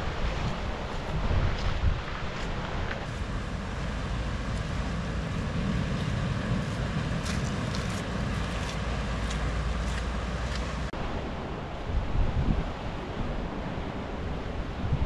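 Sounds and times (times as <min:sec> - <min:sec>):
surf breaking on rocky shore: 0:00.0 - 0:11.0
wind noise on microphone: 0:00.0 - 0:15.0.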